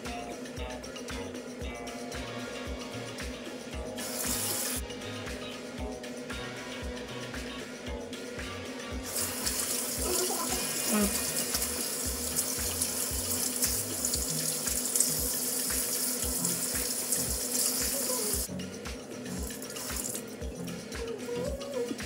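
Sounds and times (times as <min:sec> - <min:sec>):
background music with steady beat: 0:00.0 - 0:22.0
sink tap running: 0:04.0 - 0:04.8, 0:09.0 - 0:22.0.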